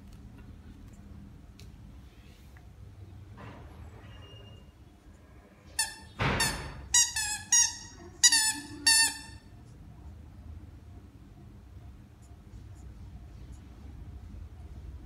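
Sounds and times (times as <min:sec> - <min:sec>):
squeaky toy squeaking: 0:05.8 - 0:09.5.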